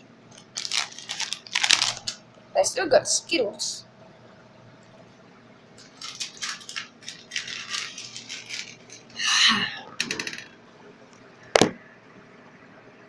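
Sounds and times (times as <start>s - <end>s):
snack packets rustling: 0.3s - 2.2s, 5.8s - 9.2s
vending machine arm rattling and scraping: 5.9s - 9.2s.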